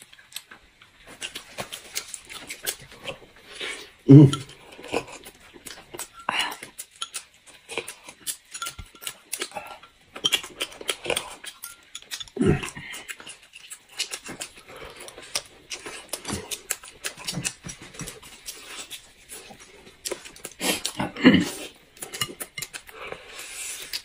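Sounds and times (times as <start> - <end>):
wet chewing and lip-smacking: 0.0 - 24.0
low grunt-like sound: 4.1 - 4.5.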